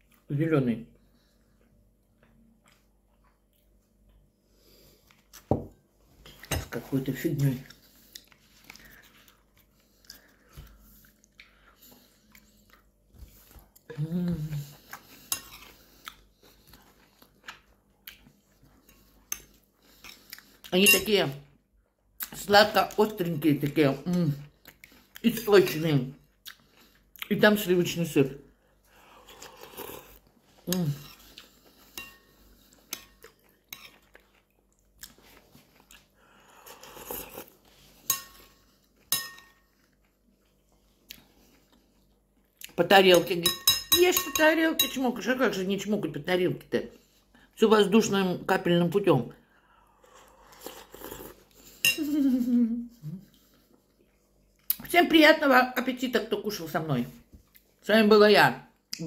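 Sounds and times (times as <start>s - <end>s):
quiet eating noises: 0.0s - 55.2s, 57.0s - 57.8s
metal spoon clinking on porcelain bowl: 20.8s - 21.1s, 39.1s - 39.6s, 43.1s - 45.0s
person slurping soup: 29.0s - 30.2s, 36.3s - 37.8s, 49.9s - 51.8s.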